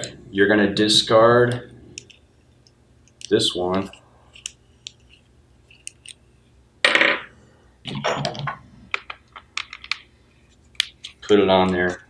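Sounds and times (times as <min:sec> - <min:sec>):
light clicks of small parts: 0:01.5 - 0:06.2
parts clattering on wooden table: 0:06.9 - 0:07.3, 0:07.9 - 0:10.1.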